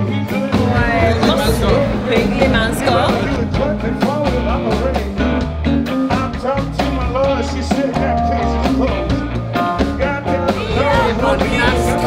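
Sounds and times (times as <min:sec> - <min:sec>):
band playing blues-rock: 0:00.0 - 0:12.0
person singing: 0:00.0 - 0:12.0
steady drumbeat: 0:00.2 - 0:12.0.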